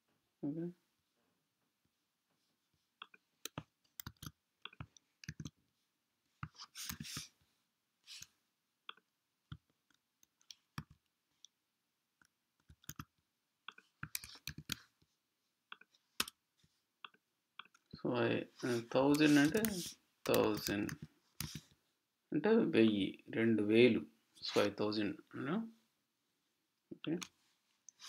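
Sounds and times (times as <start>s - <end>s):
keyboard and mouse clicks: 3.0s - 5.6s, 8.9s - 11.5s, 12.2s - 14.9s, 15.7s - 16.4s, 17.0s - 18.0s, 19.1s - 21.7s.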